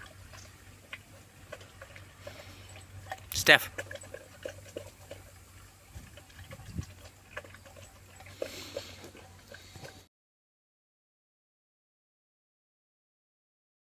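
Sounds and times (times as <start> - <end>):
dog lapping and eating: 0.0 - 10.1.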